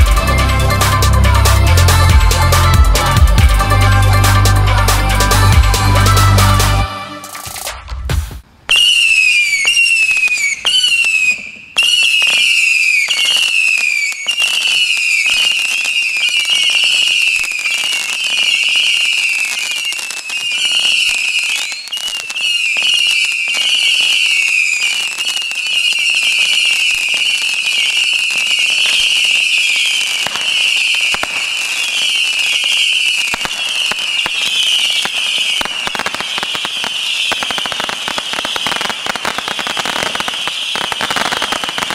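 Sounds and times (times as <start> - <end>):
whistling firework missiles: 5.3 - 41.9
sharp launch pops: 7.2 - 8.9.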